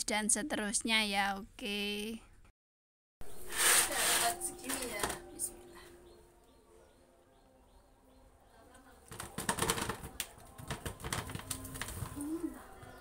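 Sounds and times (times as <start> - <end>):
meatballs clattering in plastic colander: 9.1 - 12.1.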